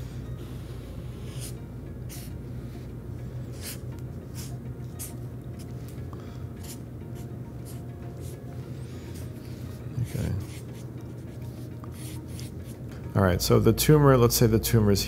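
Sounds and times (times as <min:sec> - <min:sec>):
soft background music: 0:00.0 - 0:15.0
marker scratching on paper: 0:00.6 - 0:02.8, 0:03.5 - 0:05.7, 0:06.6 - 0:08.4, 0:09.1 - 0:12.8.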